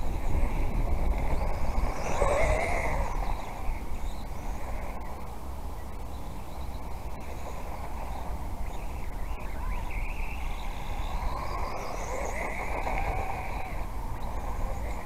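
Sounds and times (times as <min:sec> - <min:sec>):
electric toy car motor whine: 0:00.0 - 0:05.2, 0:10.4 - 0:15.0
wind rumble on microphone: 0:00.0 - 0:15.0.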